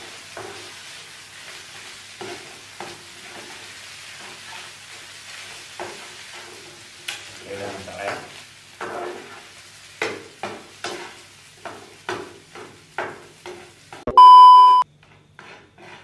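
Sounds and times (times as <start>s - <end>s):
metal spatula scraping frying pan: 0.0s - 6.9s, 8.1s - 14.0s, 15.0s - 16.0s
faint sizzle: 0.0s - 14.8s
loud beep: 14.1s - 14.8s.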